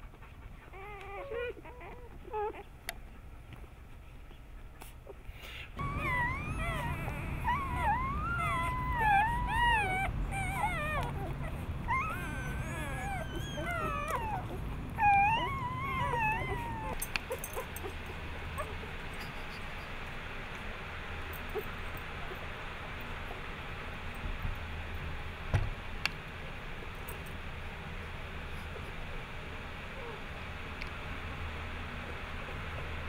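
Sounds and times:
puppies whimpering and squealing: 0.0 - 3.2, 4.3 - 20.0, 29.8 - 30.3.

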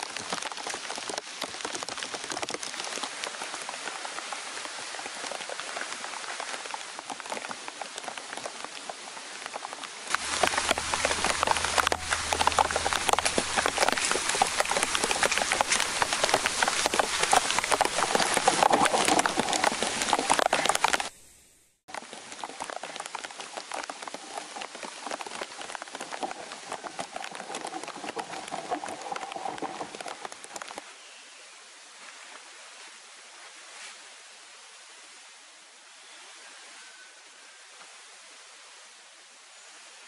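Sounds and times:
rain pattering on leaves and tarp: 0.0 - 40.0.

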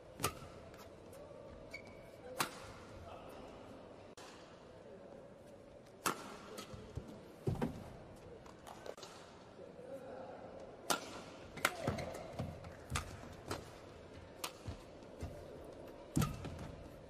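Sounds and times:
faint hall murmur: 0.0 - 17.0
racket striking shuttlecock: 0.2 - 0.8, 6.0 - 6.8, 14.4 - 14.8.

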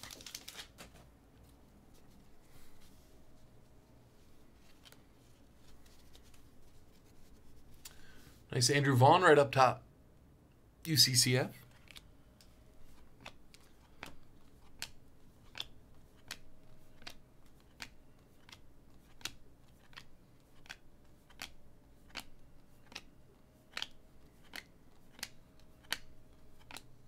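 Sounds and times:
cards clicking onto pile: 0.0 - 1.1, 17.0 - 23.1, 23.7 - 26.9.

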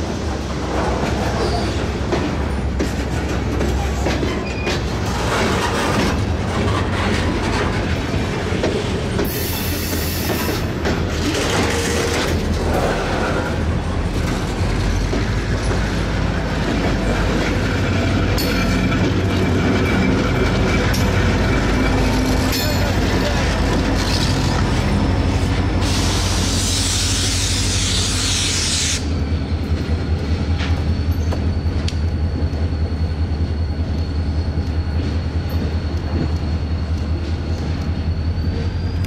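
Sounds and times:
train wheels clacking on rails: 0.0 - 39.0
high hiss or squeal: 25.8 - 29.1.

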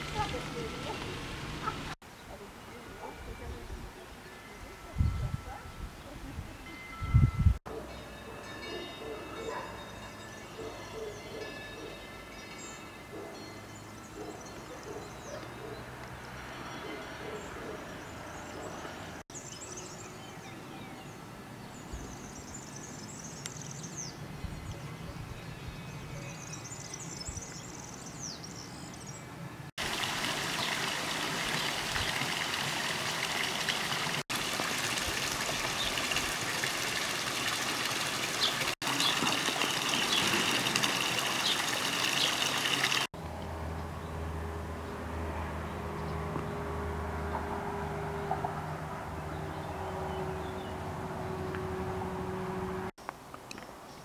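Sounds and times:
flowing water rushing: 29.8 - 43.1.

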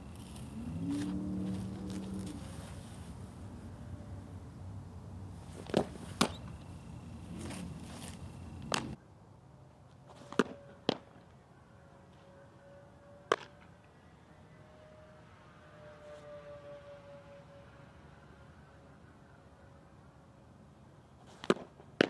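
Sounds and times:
ball smacking into mitt: 8.6 - 8.9.

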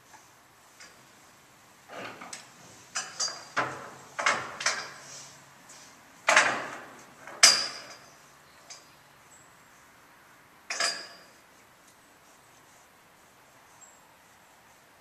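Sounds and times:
knocks and clanks in horse trailer: 1.9 - 5.0, 6.2 - 8.1.

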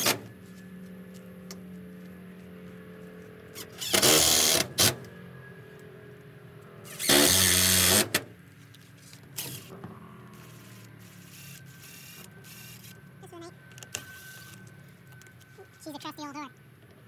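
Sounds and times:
cordless drill driving screws: 3.6 - 5.0, 6.9 - 8.2.

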